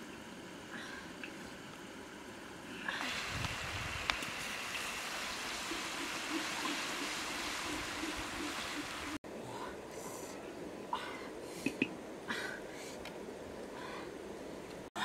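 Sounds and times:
egg sizzling in hot oil: 3.0 - 9.2.

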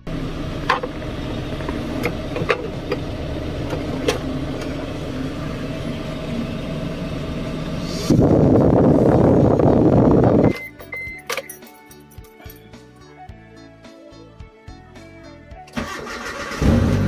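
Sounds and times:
car engine idling: 0.0 - 11.2.

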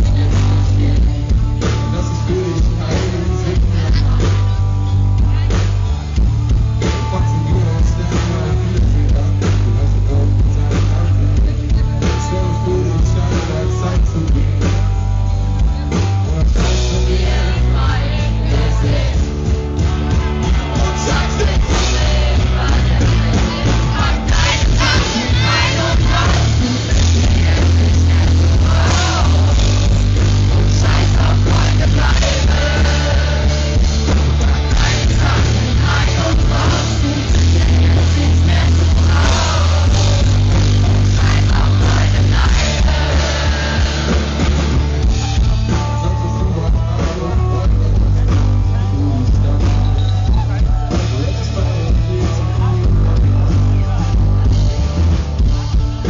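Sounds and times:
drums: 0.0 - 56.0
electric guitar: 0.0 - 56.0
heavy bass: 0.0 - 56.0
person singing: 20.1 - 44.3.

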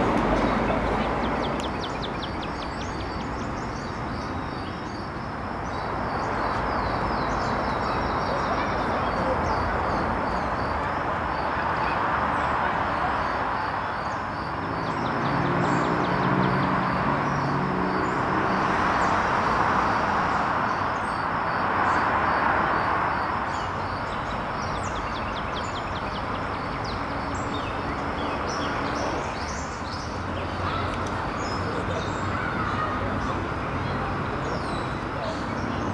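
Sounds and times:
deep vehicle engine hum: 0.0 - 4.3
small birds chirping: 0.0 - 12.6, 13.2 - 18.2, 23.1 - 35.9
cars passing: 0.0 - 35.9.

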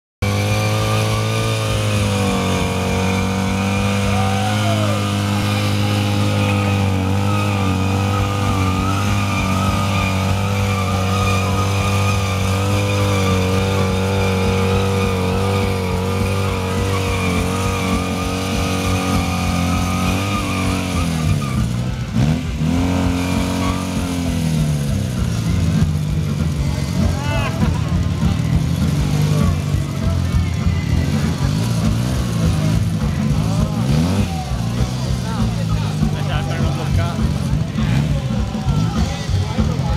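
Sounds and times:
motorcycle engine revving high: 0.2 - 39.9.

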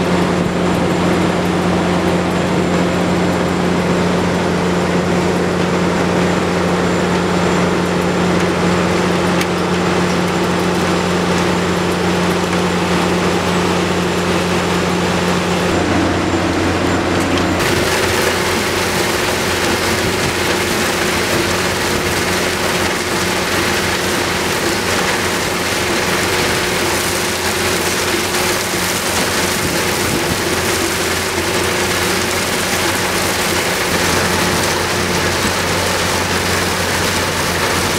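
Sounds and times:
crusher engine drone: 0.0 - 37.9
crushed stone pouring hiss: 17.6 - 37.9.

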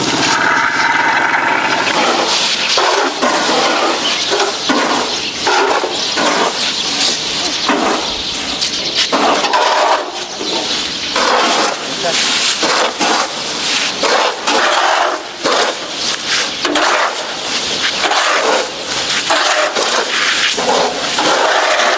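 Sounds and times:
wooden scoop scooping grain: 0.0 - 21.9
rice grain scraped on concrete: 11.2 - 21.9.

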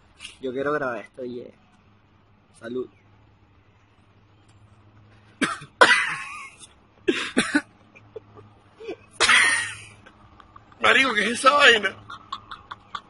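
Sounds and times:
man coughing: 5.4 - 6.4, 7.1 - 7.7, 9.2 - 9.8.

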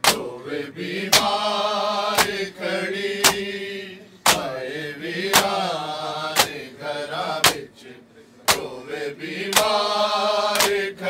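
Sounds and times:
men slapping chests: 0.0 - 0.4, 1.1 - 1.4, 2.1 - 2.5, 3.2 - 3.5, 4.2 - 4.6, 5.2 - 5.7, 6.3 - 6.7, 7.4 - 7.8, 8.5 - 8.8, 9.5 - 9.9, 10.5 - 10.9
men chanting: 0.0 - 11.0.

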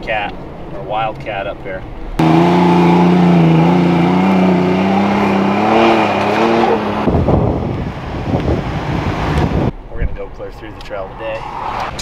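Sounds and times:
pickup engine revving hard: 2.2 - 9.7.

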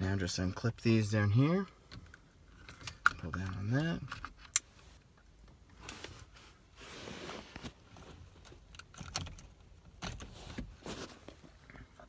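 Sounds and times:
rustling: 10.0 - 12.0.

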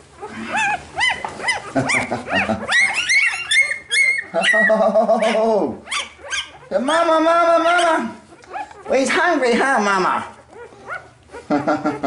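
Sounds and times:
puppies squealing and whining: 0.0 - 12.0.

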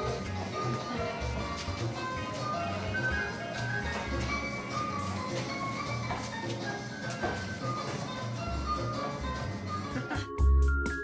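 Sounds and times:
music with pulsing bass: 9.5 - 11.0.

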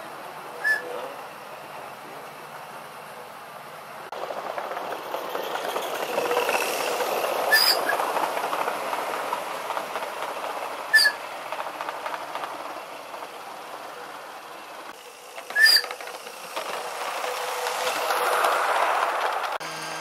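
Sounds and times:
wheels rattling over rails: 0.0 - 20.0
sharp squeaks: 0.6 - 1.1, 5.2 - 8.0, 10.9 - 11.3, 15.5 - 16.3.

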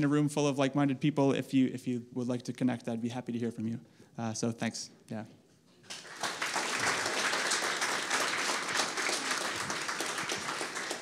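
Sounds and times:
audience applauding: 5.8 - 11.0.

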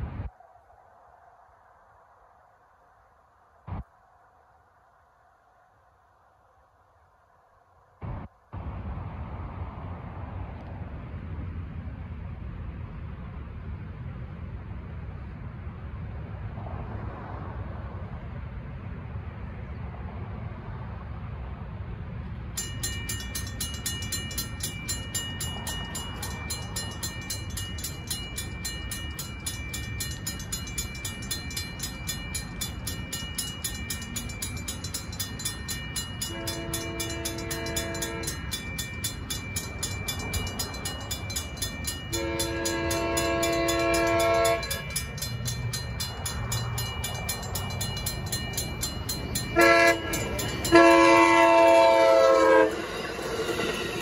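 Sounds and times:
railroad crossing bell ringing: 22.5 - 54.0
train horn blasts: 36.2 - 38.4, 42.1 - 45.0, 49.6 - 53.0.

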